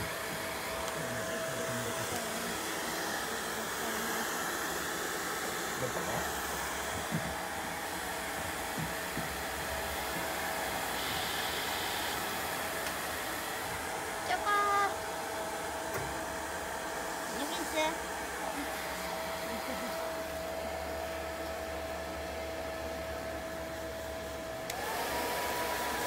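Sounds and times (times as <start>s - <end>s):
hair dryer running: 0.0s - 26.0s.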